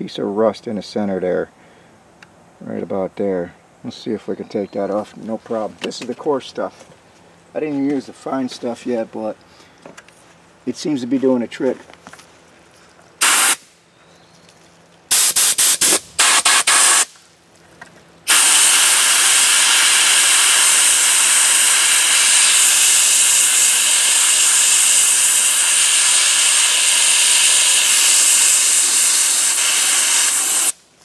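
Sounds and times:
sandblaster hissing: 0:13.2 - 0:13.7, 0:15.1 - 0:17.2, 0:18.2 - 0:30.8.

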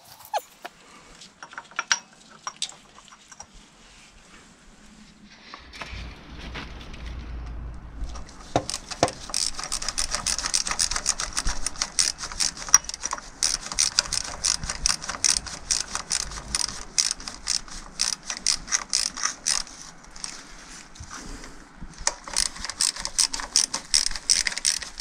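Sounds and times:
ratchet wrench clicking: 0:08.4 - 0:20.4, 0:22.0 - 0:25.0.

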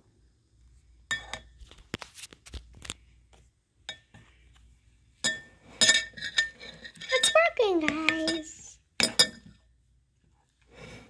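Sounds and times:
spatula stirring wet slime: 0:02.8 - 0:09.6
spatula clinking on glass: 0:05.2 - 0:09.6.

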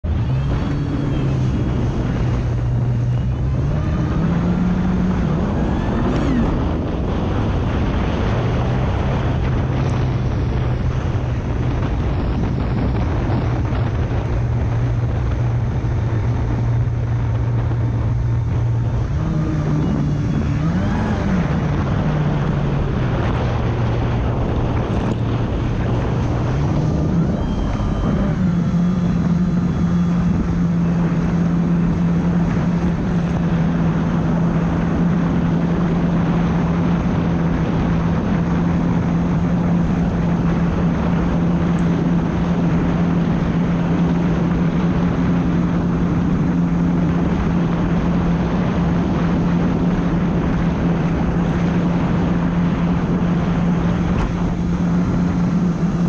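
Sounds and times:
jet ski engine revving: 0:00.0 - 0:56.0
wind and water rushing: 0:00.0 - 0:56.0.

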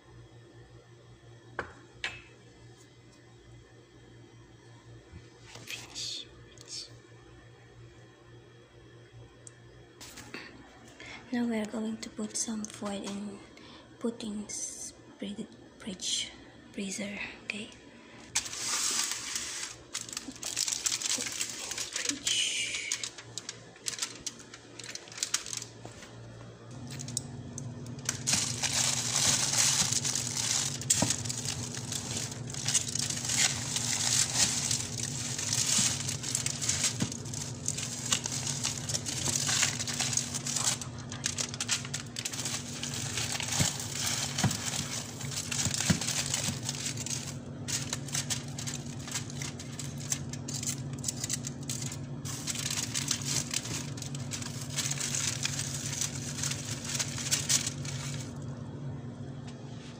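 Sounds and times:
steady low hum: 0:00.0 - 0:59.9
aluminium foil crinkling: 0:17.5 - 0:58.5
plastic bags and packets rustling: 0:17.5 - 0:58.5.

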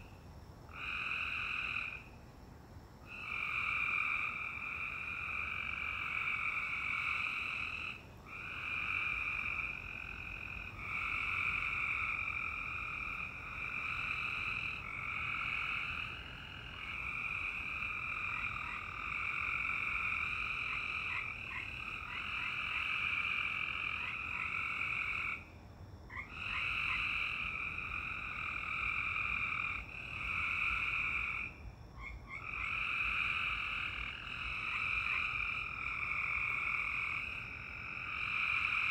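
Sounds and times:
chorus of frogs calling: 0:00.0 - 0:02.1, 0:03.1 - 0:25.5, 0:26.1 - 0:38.9.

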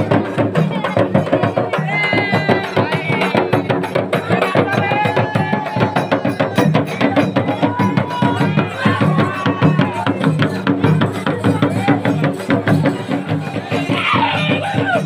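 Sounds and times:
frame drums beating: 0:00.0 - 0:15.0.

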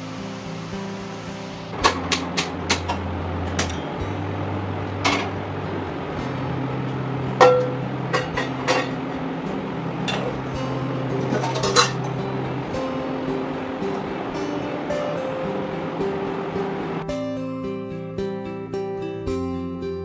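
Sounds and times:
soft guitar music: 0:00.0 - 0:20.0
metal clank ringing: 0:07.4 - 0:09.1, 0:11.2 - 0:12.2
steel kitchenware clinking: 0:11.2 - 0:12.2.

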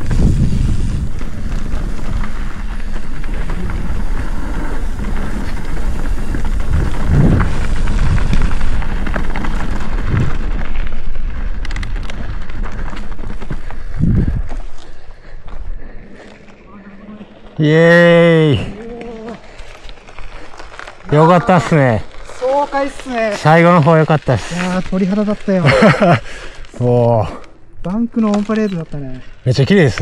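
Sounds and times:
wind rumble on microphone: 0:00.0 - 0:14.7
bike rattling over bumps: 0:00.0 - 0:26.6
tyre and trail noise: 0:00.0 - 0:30.0.

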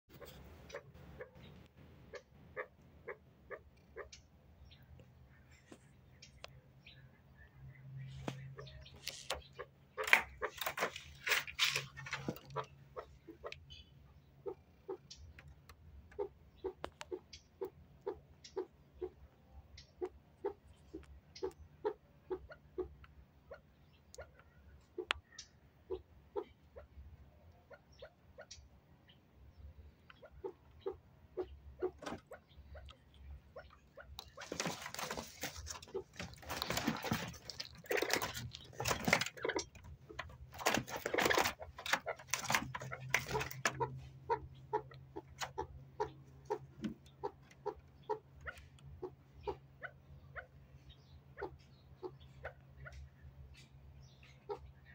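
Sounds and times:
birds rustling and fluttering in cage: 0:08.1 - 0:12.8, 0:34.1 - 0:44.2
partridges clucking: 0:30.0 - 0:48.8.

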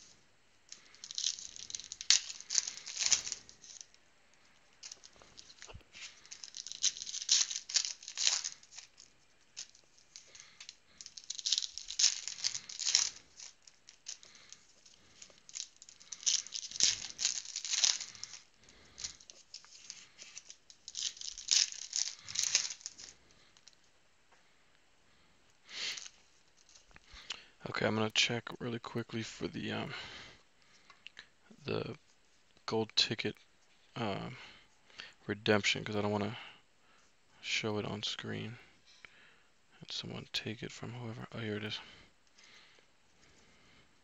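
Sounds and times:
foil wrappers torn and crinkled: 0:00.7 - 0:03.9, 0:04.8 - 0:23.8.

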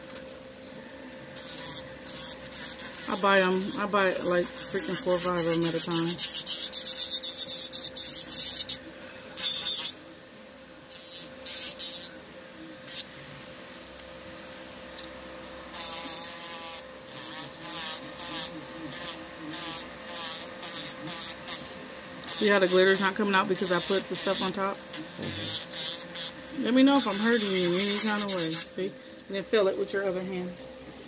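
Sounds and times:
electric nail drill whining: 0:01.3 - 0:08.8, 0:09.4 - 0:10.0, 0:10.9 - 0:12.2, 0:14.0 - 0:29.6
drill bit grinding on nail: 0:01.4 - 0:08.8, 0:09.4 - 0:10.0, 0:10.9 - 0:12.1, 0:15.7 - 0:28.8.

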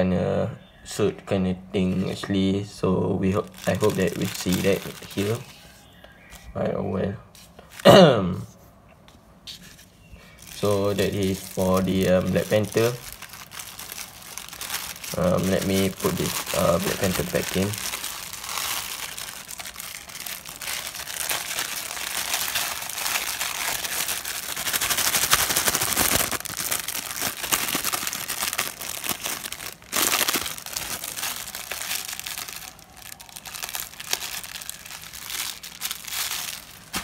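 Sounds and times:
plastic wrapper crinkling: 0:03.0 - 0:05.8, 0:10.2 - 0:37.0.

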